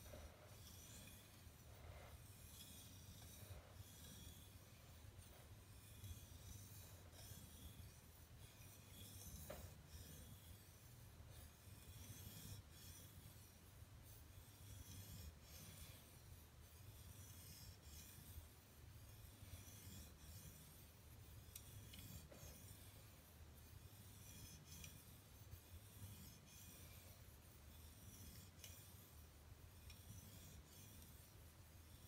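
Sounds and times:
knife scraping on whetstone: 0.0 - 32.0.

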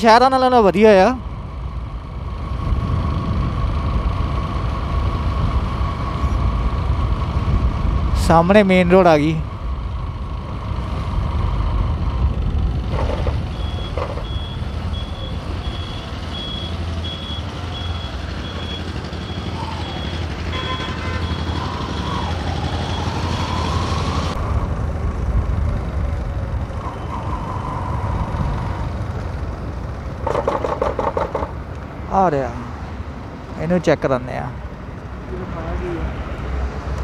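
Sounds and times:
wind and road noise: 0.0 - 37.0
turn indicator beeping: 13.5 - 20.2.

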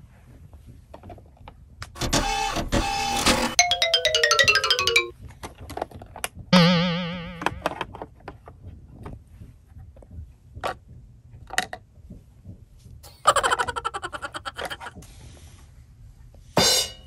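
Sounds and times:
loud warbling twang: 6.6 - 7.7.

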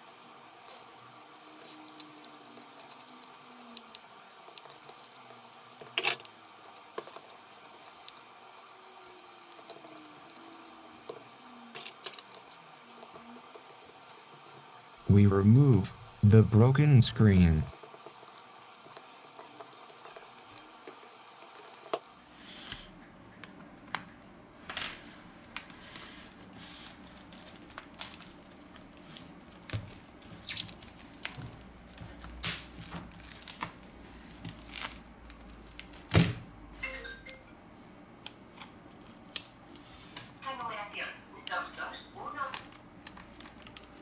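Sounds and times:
faint low hum: 8.1 - 17.8.

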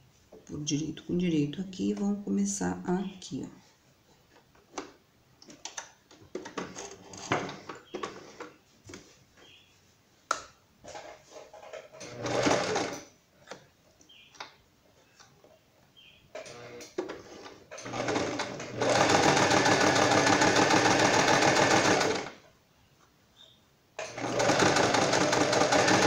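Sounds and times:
sewing machine stitching: 11.7 - 13.1, 16.4 - 22.4, 24.0 - 26.0.

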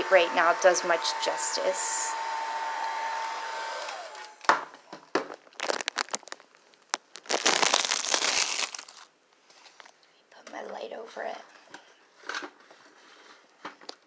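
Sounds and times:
hair dryer whining: 0.0 - 4.5
plastic sheeting crinkling: 5.2 - 9.9.

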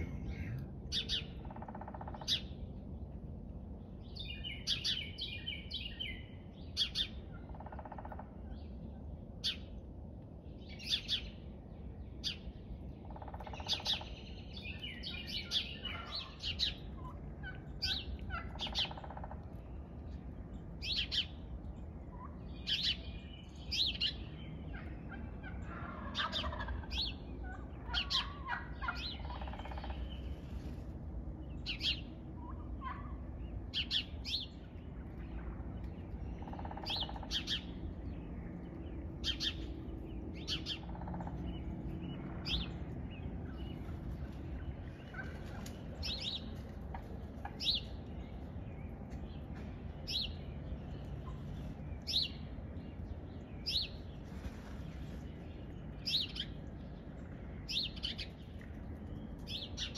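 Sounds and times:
low background rumble: 0.0 - 59.9
songbird chirps: 0.0 - 59.9
wild turkeys calling: 15.1 - 19.6, 24.7 - 30.4, 32.4 - 33.2, 36.4 - 37.6, 40.6 - 41.4, 45.0 - 47.9.

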